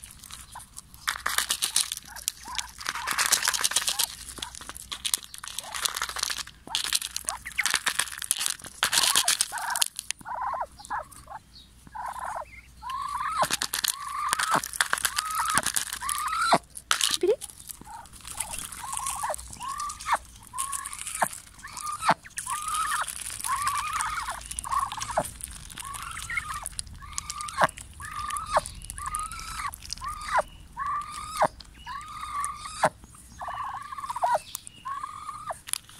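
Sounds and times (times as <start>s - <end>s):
bills tapping: 0.3s - 10.0s, 13.4s - 30.4s
ducks making short calls: 17.8s - 35.6s.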